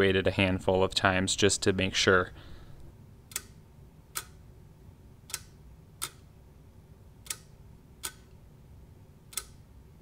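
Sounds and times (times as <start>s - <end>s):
solenoid clicks: 3.2s - 4.4s, 5.2s - 6.3s, 7.2s - 8.4s, 9.3s - 9.7s.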